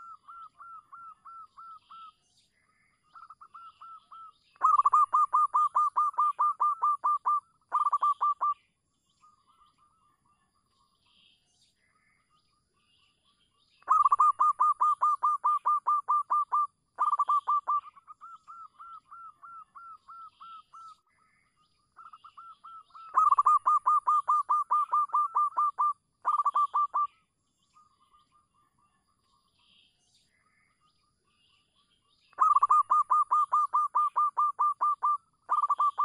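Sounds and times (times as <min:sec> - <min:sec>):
dove cooing: 0:04.6 - 0:08.6, 0:13.9 - 0:20.9, 0:22.3 - 0:27.1, 0:32.4 - 0:36.0.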